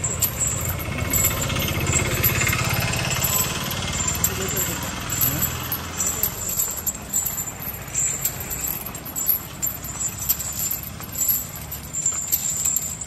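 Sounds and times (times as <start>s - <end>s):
metal chains clinking: 0.0s - 13.0s.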